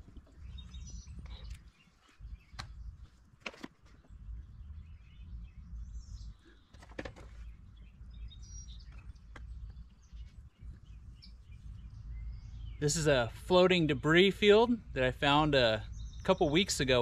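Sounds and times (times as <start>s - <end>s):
small birds chirping: 0.0s - 17.0s
steady low rumble: 4.0s - 6.7s, 7.3s - 17.0s.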